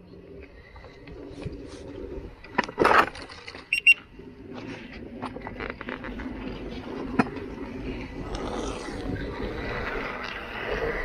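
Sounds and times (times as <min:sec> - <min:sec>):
tyre rolling on wet pavement: 0:00.0 - 0:11.0.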